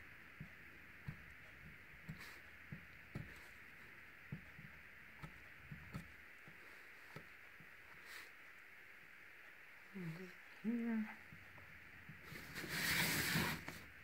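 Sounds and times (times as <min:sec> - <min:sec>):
steady background hiss: 0:00.0 - 0:14.0
marker pen tapping and scratching: 0:00.4 - 0:03.6, 0:04.3 - 0:06.1.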